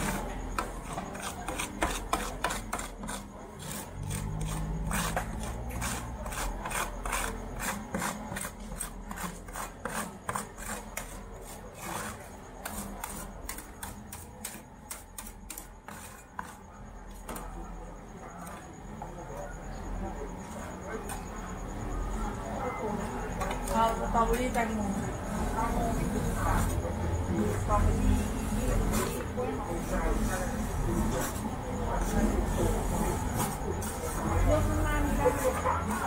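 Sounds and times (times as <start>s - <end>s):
metal spatulas scraping cold plate: 0.0s - 16.7s.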